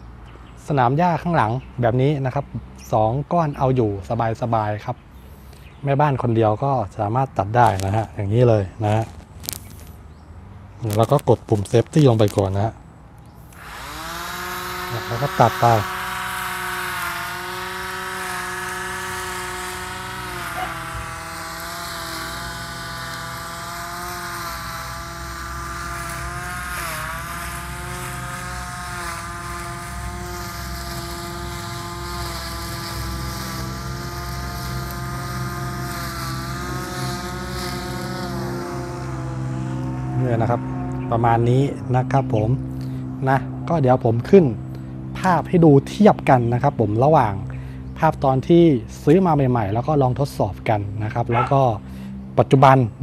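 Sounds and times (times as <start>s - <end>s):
electric grass trimmer whine: 10.8s - 53.0s.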